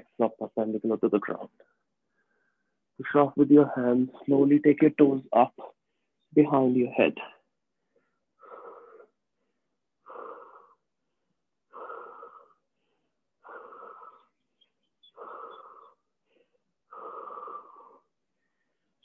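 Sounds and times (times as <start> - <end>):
man breathing hard: 7.7 - 19.0.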